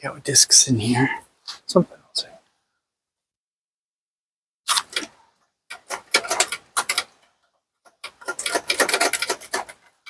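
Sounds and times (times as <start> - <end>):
hard parts clicking and clattering: 4.9 - 10.0.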